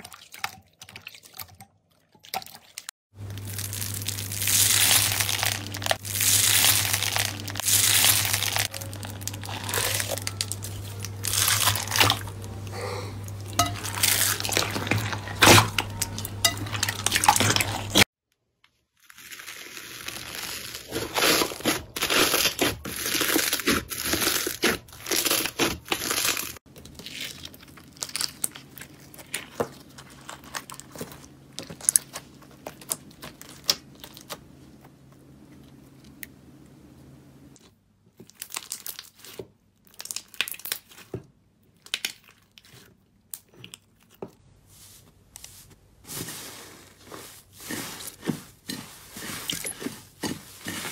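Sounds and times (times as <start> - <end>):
crunchy crackling of bead slime: 3.2 - 12.6, 18.9 - 34.4, 38.1 - 44.2
low steady hum: 3.2 - 18.0.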